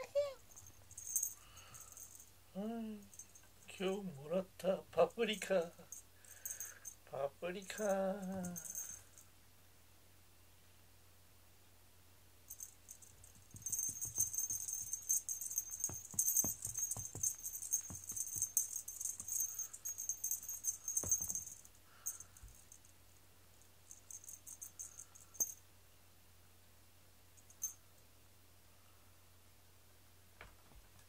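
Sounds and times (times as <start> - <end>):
small bell jingling: 0.0 - 9.2, 12.5 - 23.0, 23.6 - 25.6, 27.4 - 27.8
toy tapping on foam mats: 12.5 - 21.7.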